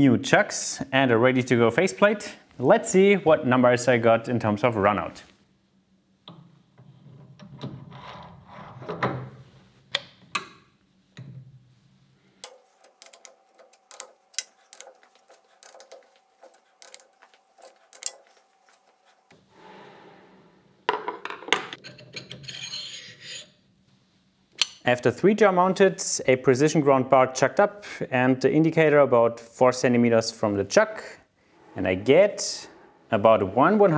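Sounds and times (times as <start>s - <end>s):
metal clicks and knocks: 12.4s - 18.4s
steel bar clinking and rattling: 12.4s - 18.8s, 21.8s - 23.5s.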